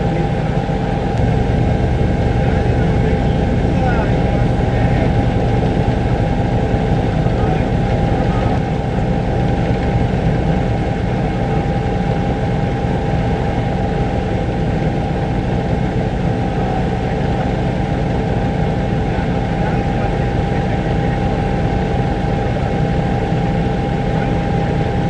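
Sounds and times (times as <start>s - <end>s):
helicopter engine and rotor drone: 0.0s - 25.0s.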